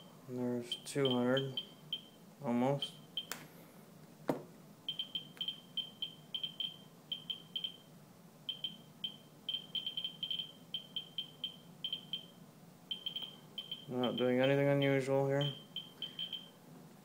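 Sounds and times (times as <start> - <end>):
geiger counter beeps: 0.7 - 2.1, 4.9 - 7.8, 8.5 - 12.3, 12.9 - 16.5.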